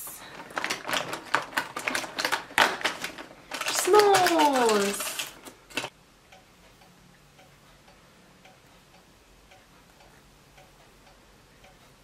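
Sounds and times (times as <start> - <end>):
faint regular ticking: 3.5 - 12.0.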